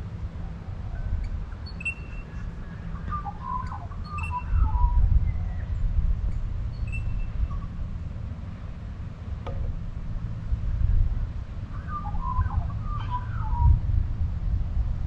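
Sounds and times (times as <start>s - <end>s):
birds whistling and warbling: 0.9s - 5.8s, 6.7s - 7.7s, 11.7s - 13.8s.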